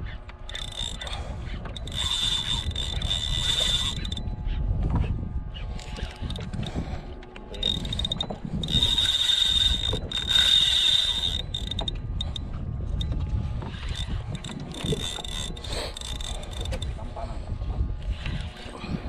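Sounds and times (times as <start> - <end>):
fishing reel gears whirring: 0.0 - 19.0.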